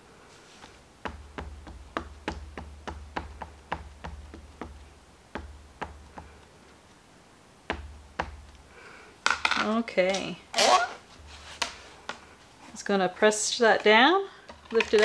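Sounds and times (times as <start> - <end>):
ink pad tapping plastic stamp: 1.0 - 6.4, 7.7 - 8.6.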